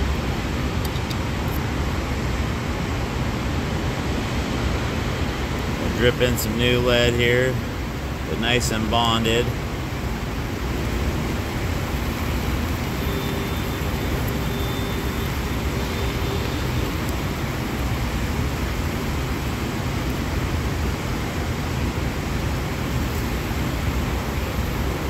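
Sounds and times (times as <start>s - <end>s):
faint steady tone: 5.5s - 25.0s
arc welding running noise: 10.1s - 20.3s.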